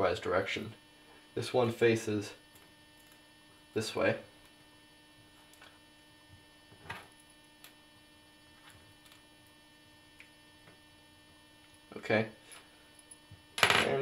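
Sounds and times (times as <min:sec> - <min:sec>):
steady electrical hum: 0:00.0 - 0:14.0.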